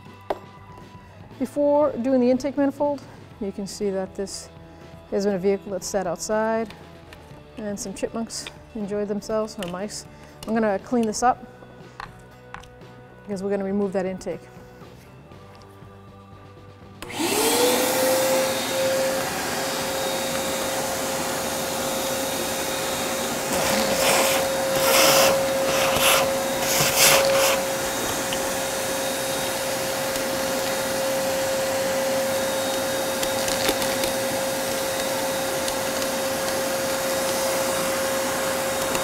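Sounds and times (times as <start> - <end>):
shop vacuum motor whine: 17.0 - 39.0
hose sucking debris: 18.4 - 31.3.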